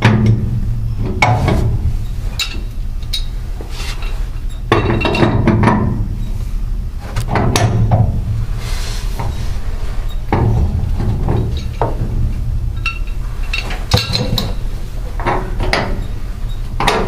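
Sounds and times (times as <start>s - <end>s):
steady low hum: 0.0s - 17.0s
wrenches knocking on metal pipe: 4.7s - 6.0s.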